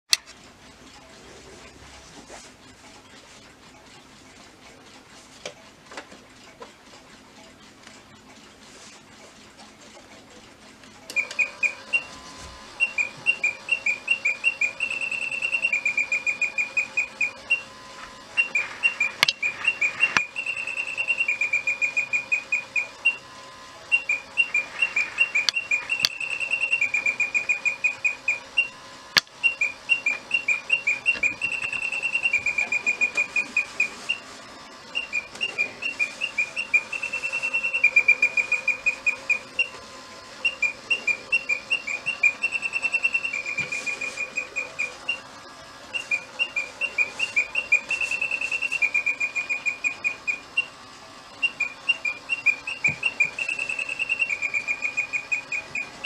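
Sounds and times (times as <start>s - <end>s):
electronic birdsong chirps: 11.1s - 12.2s, 12.8s - 17.8s, 18.4s - 23.3s, 23.9s - 28.8s, 29.4s - 39.8s, 40.4s - 45.3s, 45.9s - 56.0s.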